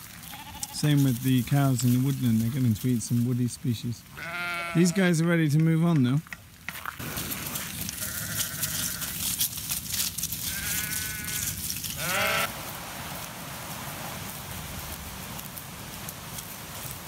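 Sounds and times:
rustling background: 0.0 - 17.0
sheep bleating: 0.2 - 1.0, 4.1 - 5.2, 7.9 - 9.2, 10.4 - 12.5.

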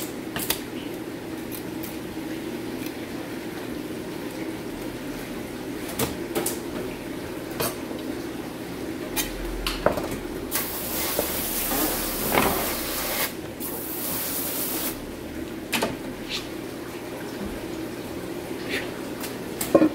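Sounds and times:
water spraying: 10.5 - 15.1.

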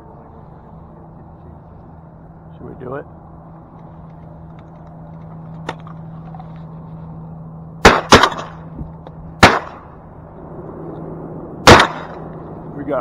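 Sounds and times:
shotgun blasts: 7.8 - 8.7, 9.4 - 9.9, 11.6 - 12.3.

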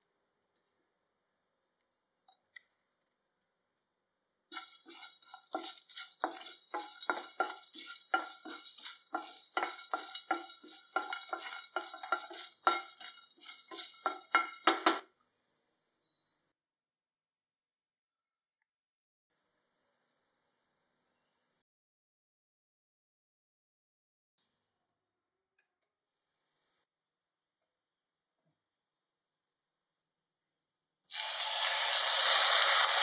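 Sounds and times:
wooden spatula scraping a pan: 4.5 - 15.0.

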